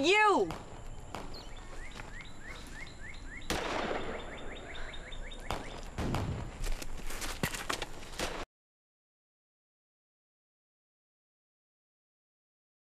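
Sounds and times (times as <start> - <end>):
bird chirping: 0.0 - 6.0
rustling: 6.4 - 8.3.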